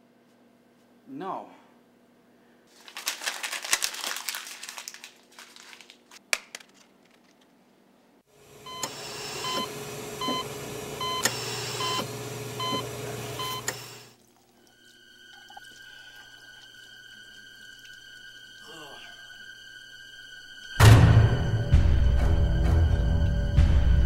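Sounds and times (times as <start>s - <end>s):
dense crackling and rustling: 2.7s - 7.6s
loud steady hiss: 8.4s - 10.1s.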